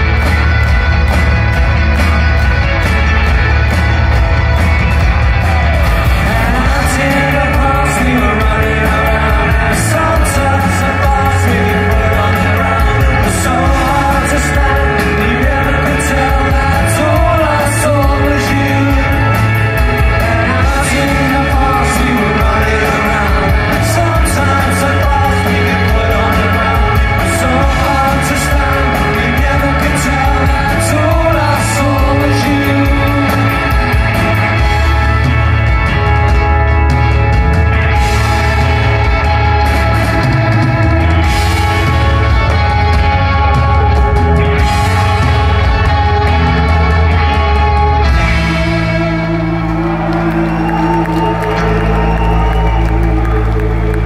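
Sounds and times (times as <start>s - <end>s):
rock band playing live: 0.0s - 54.0s
person singing: 5.1s - 36.6s.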